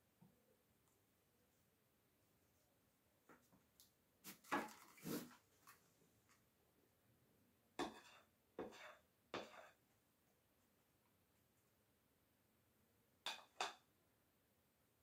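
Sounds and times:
spoon scraping and tapping: 0:07.8 - 0:09.8, 0:13.3 - 0:13.9.

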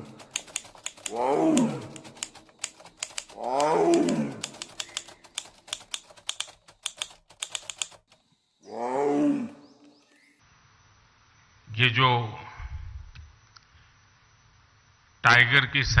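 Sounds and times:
typewriter key clicks: 0:00.0 - 0:08.2
big cat roaring: 0:01.1 - 0:02.1, 0:03.4 - 0:04.6, 0:08.6 - 0:09.7.

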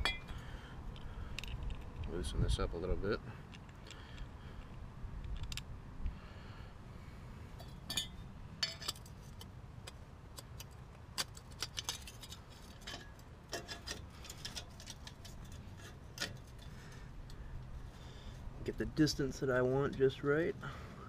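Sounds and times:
low steady rumble: 0:00.0 - 0:11.2, 0:11.9 - 0:21.0
metallic clicks and clinks: 0:07.6 - 0:17.4.

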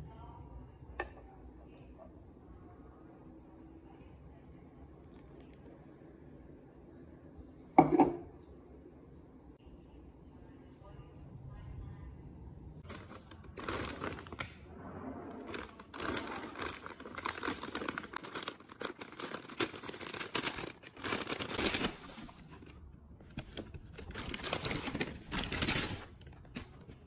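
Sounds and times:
paper bag rustling and crinkling: 0:12.8 - 0:27.0.

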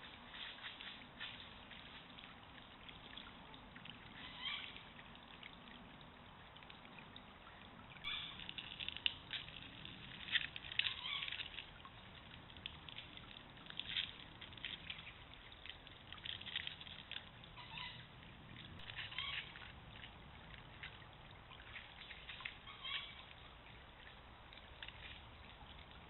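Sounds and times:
small splashes and clicks: 0:00.0 - 0:26.0
stream trickling over gravel: 0:00.0 - 0:26.0.

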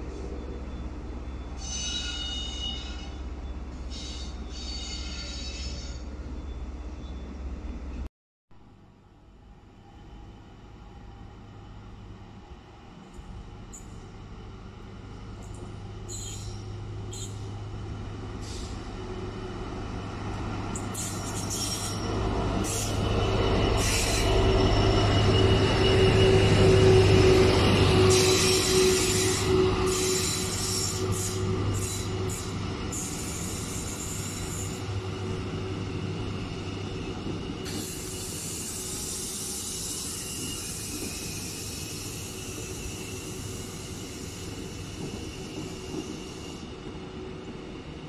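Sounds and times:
diesel locomotive engine drone: 0:00.0 - 0:48.0
train wheels squealing: 0:00.1 - 0:07.4, 0:13.6 - 0:14.1, 0:15.4 - 0:17.6, 0:20.7 - 0:48.0.

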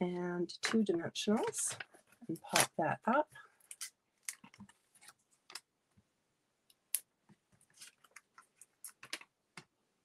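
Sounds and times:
paper rustling: 0:07.6 - 0:09.2.

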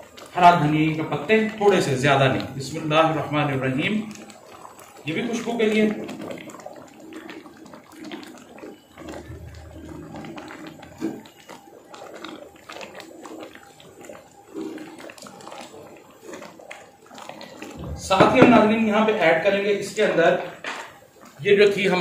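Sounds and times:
ladle knocking against pot: 0:17.8 - 0:18.8.

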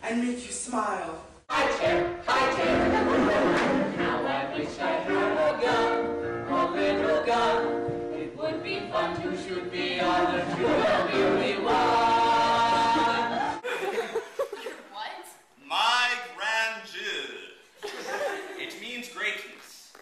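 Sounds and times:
group of voices singing: 0:01.5 - 0:13.7.

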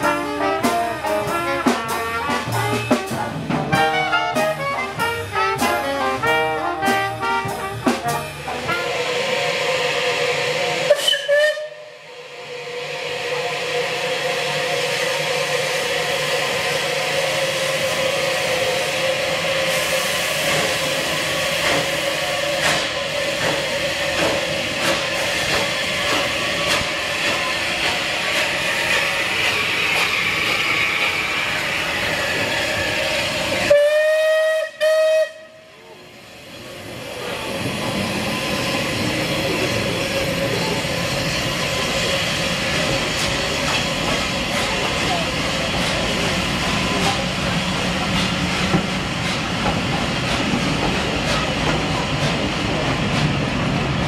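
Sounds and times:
steam locomotive hissing: 0:00.0 - 0:54.0
steam whistle blasts: 0:03.7 - 0:14.5, 0:33.6 - 0:35.8.

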